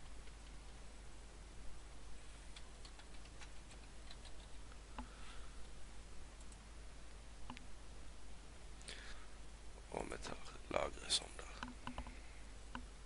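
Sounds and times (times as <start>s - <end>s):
computer keyboard typing: 2.6s - 4.6s.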